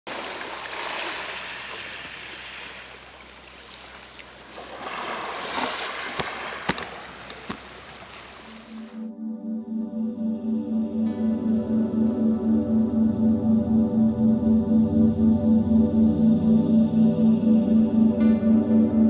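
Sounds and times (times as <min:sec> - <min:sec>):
water splashing against rock: 0:00.1 - 0:08.9.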